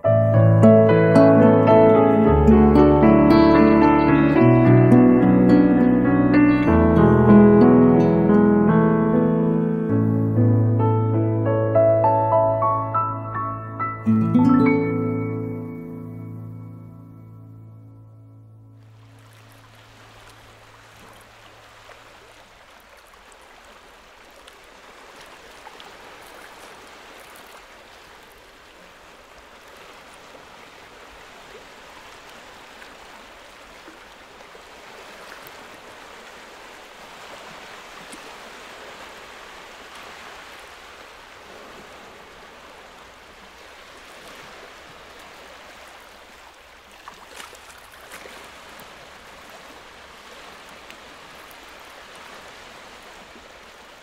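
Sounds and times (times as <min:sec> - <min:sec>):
waves lapping on rocky shore: 0:18.8 - 0:54.0.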